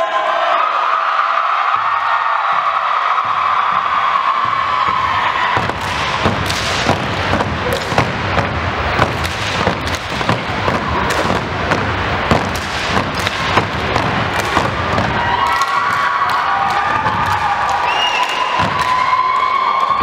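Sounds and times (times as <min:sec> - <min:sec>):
crowd noise: 0:00.0 - 0:20.0
hands clapping in unison: 0:05.7 - 0:08.2, 0:09.0 - 0:20.0.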